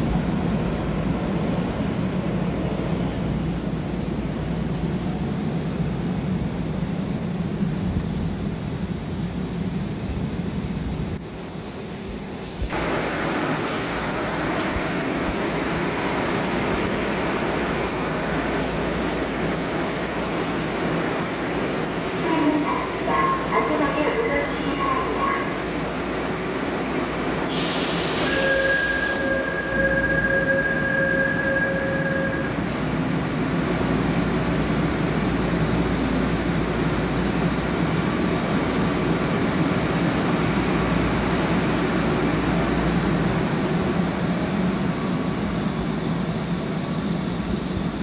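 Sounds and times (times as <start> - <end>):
train running noise: 0.0 - 48.0
air hiss of closing doors: 12.6 - 15.0, 27.4 - 29.2, 41.2 - 41.8.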